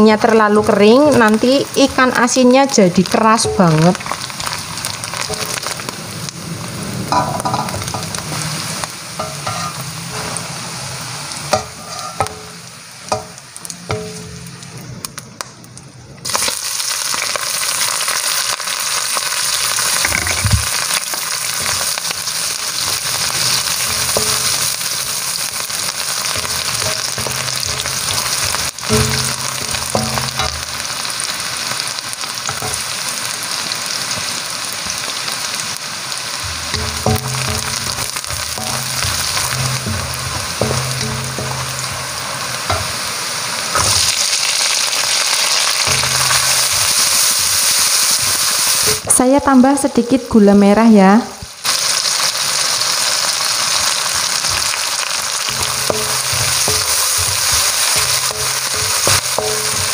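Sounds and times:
fish frying in oil: 0.0s - 15.4s, 16.2s - 49.2s, 51.0s - 59.9s
shallots sizzling in hot oil: 0.0s - 15.6s, 16.2s - 59.9s
spatula scraping and knocking pan: 9.2s - 10.5s, 11.5s - 14.5s, 21.5s - 31.0s, 32.4s - 32.9s, 36.4s - 44.4s, 45.8s - 49.1s, 54.4s - 59.9s.

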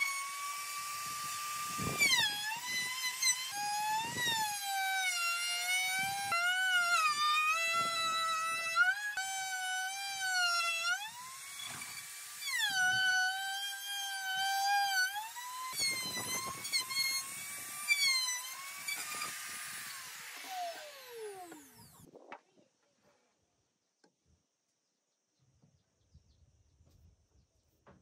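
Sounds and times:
motor winding down: 0.0s - 22.1s
router cutting wood: 0.0s - 22.1s.

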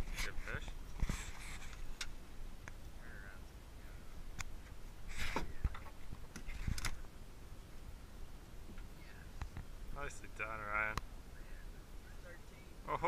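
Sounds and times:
wind rumble on microphone: 3.8s - 7.2s
knocks and thumps in a boat: 5.2s - 7.0s.

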